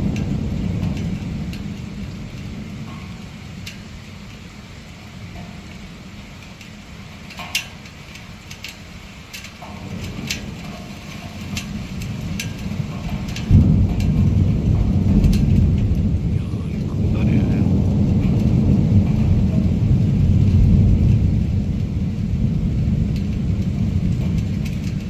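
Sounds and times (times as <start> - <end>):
raindrop ticks: 0.0 - 25.0
steady rain: 0.0 - 25.0
thunder rumbling: 11.7 - 25.0
loud thunderclap: 12.1 - 24.6.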